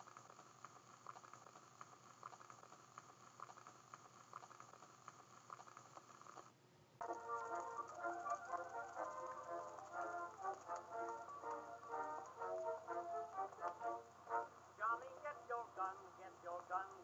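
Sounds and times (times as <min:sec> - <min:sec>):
old film crackle pops: 0:07.0 - 0:12.7
music: 0:07.0 - 0:15.2.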